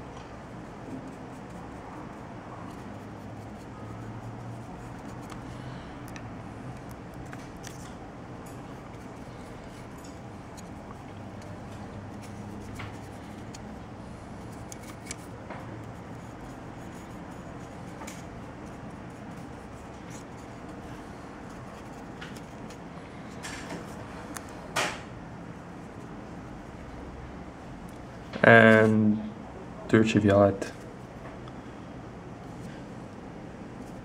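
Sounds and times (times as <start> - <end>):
low room hum: 0.0 - 34.0
clicks and rustles of handling: 4.6 - 13.8, 14.4 - 25.0.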